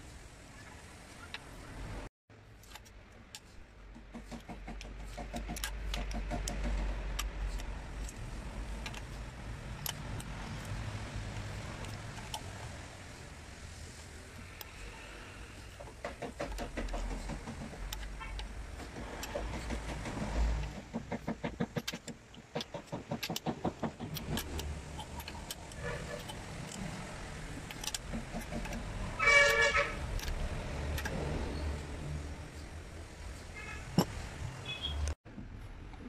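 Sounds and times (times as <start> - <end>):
hand ratchet clicking: 4.0 - 12.8, 15.7 - 31.2
metal tool ticks: 15.8 - 26.9
vehicle horn honk: 29.2 - 30.0.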